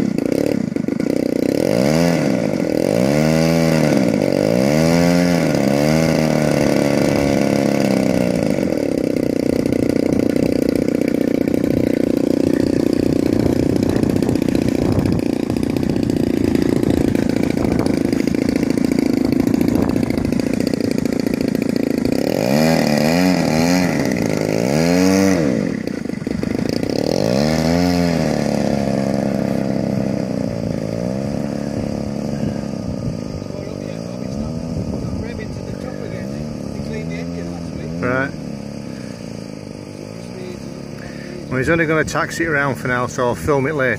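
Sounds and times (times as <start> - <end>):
model airplane engine revving: 0.0 - 43.9.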